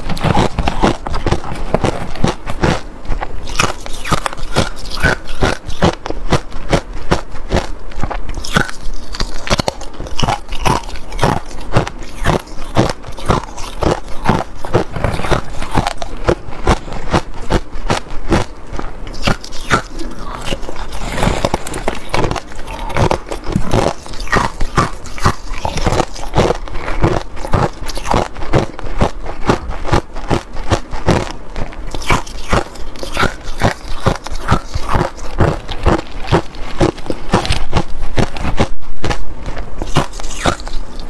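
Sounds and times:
ice crunched between teeth: 0.0 - 39.2, 39.8 - 41.0.

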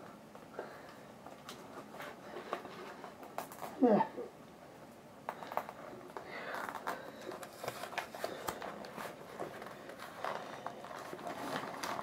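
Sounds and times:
packaging rustling and crinkling: 5.3 - 12.0
small clicks and scrapes: 5.3 - 12.0.

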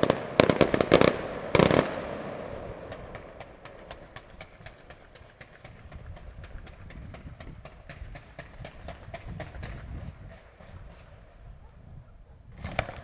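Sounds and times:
fireworks popping: 0.0 - 2.2, 2.8 - 11.2, 12.5 - 13.0.

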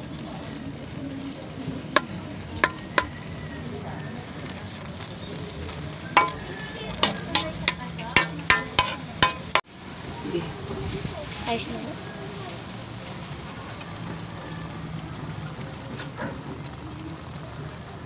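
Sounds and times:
steady sizzle: 0.0 - 18.0
metal ladle clinking on wok: 2.0 - 3.3, 6.2 - 9.6.

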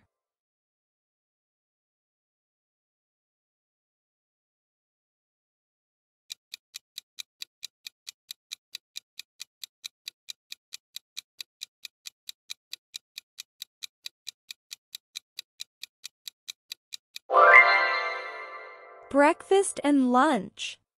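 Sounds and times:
clock ticking: 6.3 - 17.3.

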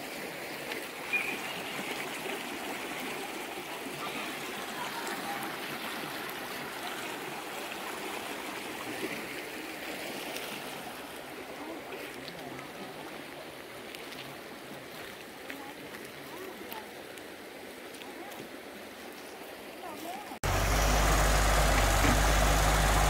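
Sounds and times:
river rushing over rocks: 20.4 - 23.0.

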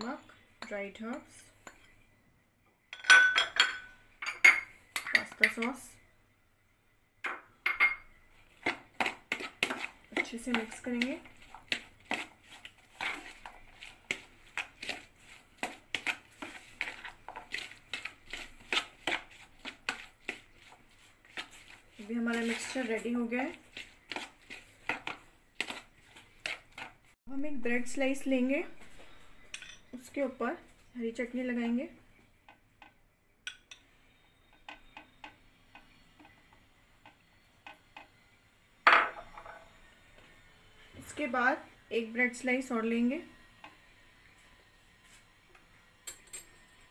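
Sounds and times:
spoon stirring wet mixture: 4.5 - 6.0, 7.7 - 38.4.

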